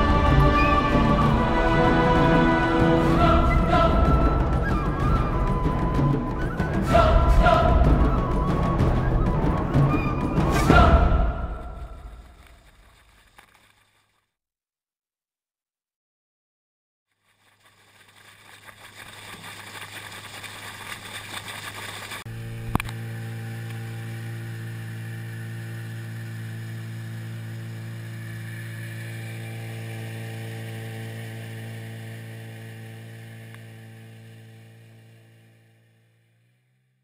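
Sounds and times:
outboard motor drone: 0:00.0 - 0:13.6, 0:17.4 - 0:37.0
water splashing against boat hull: 0:17.2 - 0:22.9.

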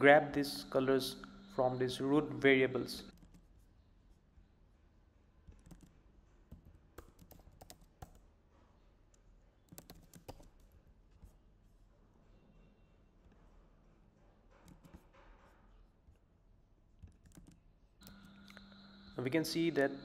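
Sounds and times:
faint keyboard typing: 0:03.1 - 0:03.6, 0:05.4 - 0:08.3, 0:09.6 - 0:11.4, 0:14.5 - 0:15.2, 0:17.0 - 0:19.2.

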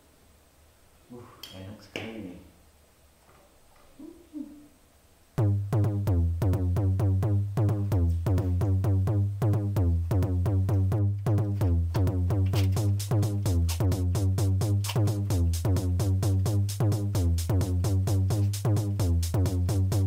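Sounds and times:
electronic dance music: 0:05.4 - 0:20.0.

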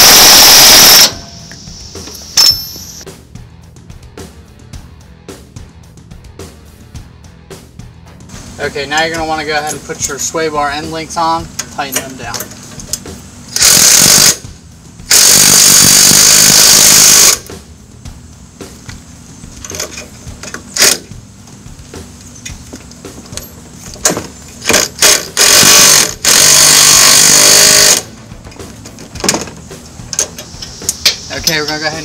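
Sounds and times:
impact wrench hammering: 0:13.6 - 0:14.4, 0:15.1 - 0:17.5, 0:23.9 - 0:29.6.

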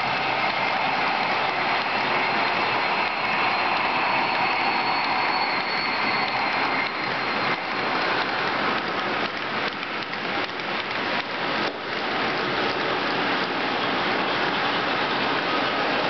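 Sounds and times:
model train wheels clattering: 0:04.7 - 0:12.1.

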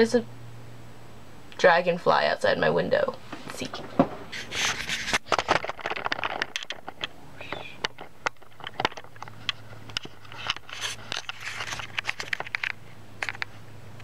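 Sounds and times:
steady low hum: 0:00.0 - 0:14.0
camera handling clicks and rustles: 0:04.3 - 0:13.5.

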